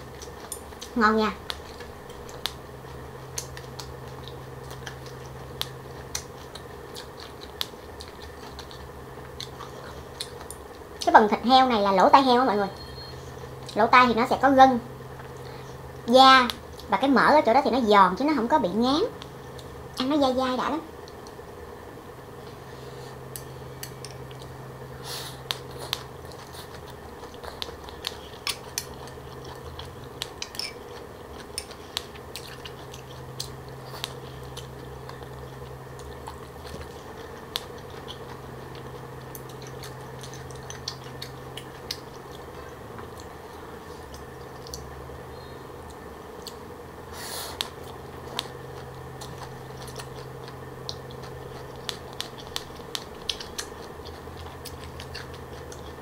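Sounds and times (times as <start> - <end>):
crunchy chewing: 0.0 - 11.1, 22.4 - 56.0
steady low hum: 0.0 - 56.0.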